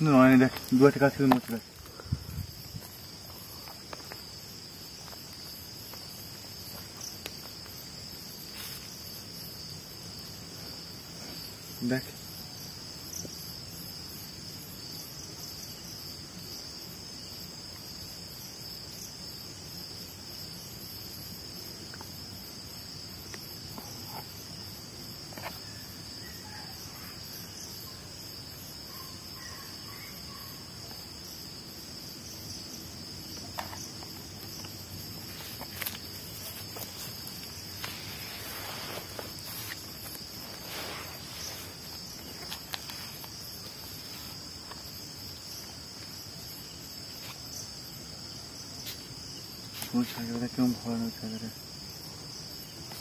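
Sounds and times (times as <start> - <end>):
crickets and insects chirring: 0.0 - 53.0.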